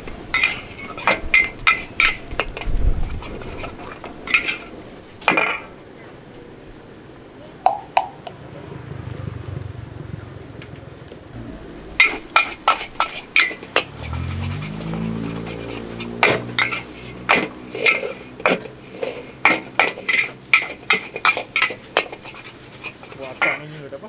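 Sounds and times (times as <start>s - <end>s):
metal spatula clanging on wok: 0.3s - 2.6s, 16.2s - 18.8s, 19.4s - 23.6s
low hum rising in pitch: 8.3s - 16.6s.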